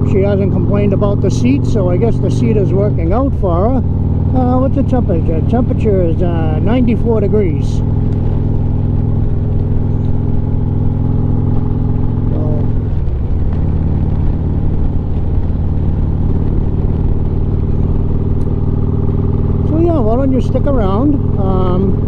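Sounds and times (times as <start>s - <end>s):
motorcycle engine running: 0.0s - 22.0s
wind rush: 5.3s - 20.0s.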